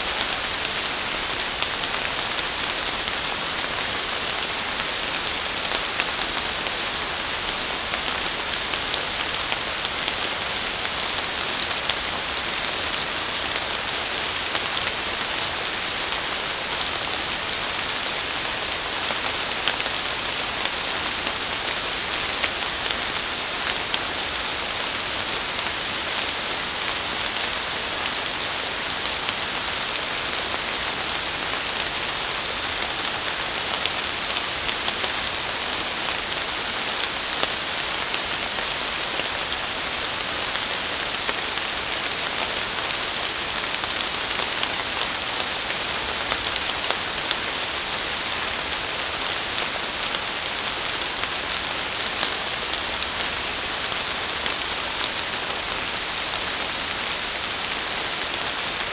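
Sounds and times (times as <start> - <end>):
rain falling on trees: 0.0 - 58.9.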